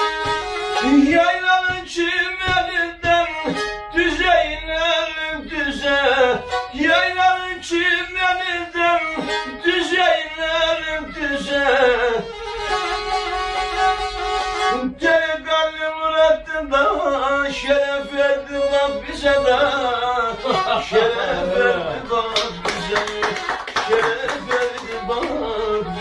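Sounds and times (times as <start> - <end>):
folk music with bowed fiddle: 0.0 - 26.0.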